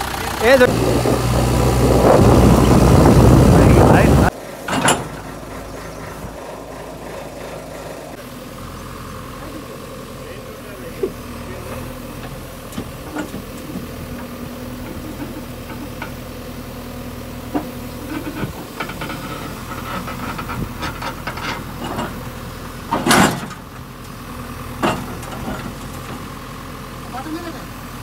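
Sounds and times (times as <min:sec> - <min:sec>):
diesel engine running: 0:00.0 - 0:28.0
sudden loud burst of noise: 0:00.7 - 0:04.3
knocks and scrapes: 0:17.5 - 0:22.2.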